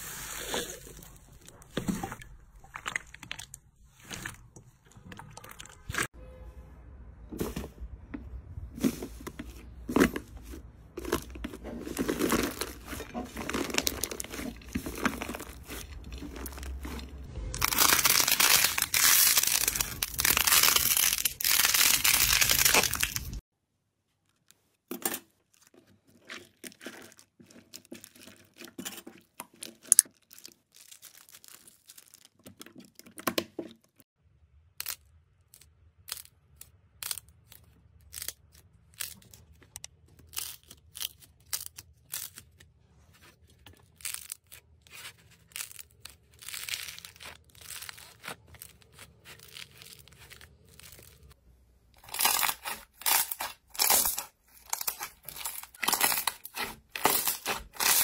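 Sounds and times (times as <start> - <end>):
crunchy slime crackling: 11.0 - 23.4, 43.8 - 51.4, 52.0 - 58.0.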